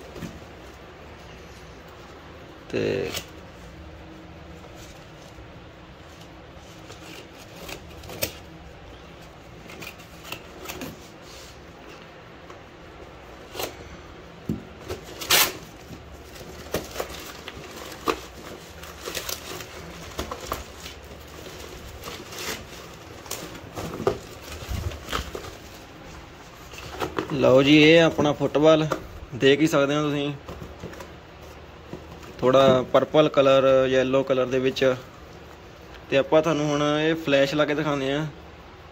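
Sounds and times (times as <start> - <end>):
cardboard and plastic rustling: 0.0 - 35.9
sharp ripping: 15.1 - 15.8.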